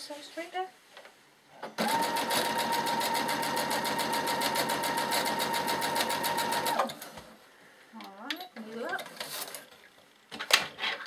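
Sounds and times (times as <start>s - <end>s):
sewing machine sewing: 1.8s - 7.2s.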